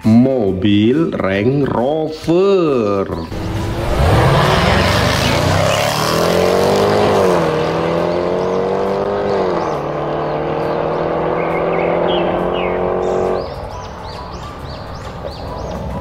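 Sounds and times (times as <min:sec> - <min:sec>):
cars accelerating hard: 0:03.3 - 0:13.9.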